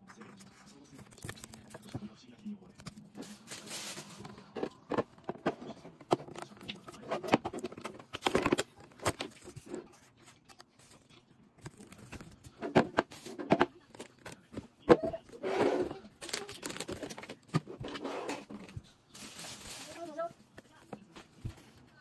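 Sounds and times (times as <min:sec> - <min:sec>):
wrapping film rustling: 0:03.1 - 0:04.9, 0:16.1 - 0:17.2, 0:19.1 - 0:20.4.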